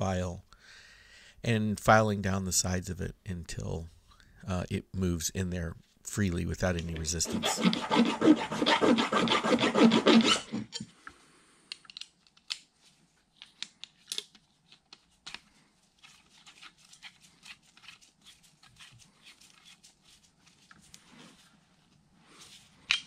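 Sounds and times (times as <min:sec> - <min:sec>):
hand file rasping: 0:07.2 - 0:10.8.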